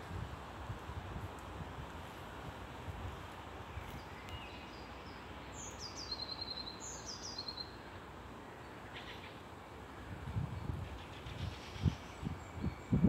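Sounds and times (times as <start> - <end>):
songbird singing: 3.4 - 13.0.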